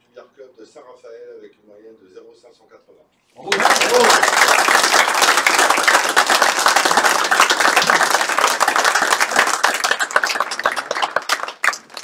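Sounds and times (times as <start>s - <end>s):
small audience applauding: 3.4s - 12.0s.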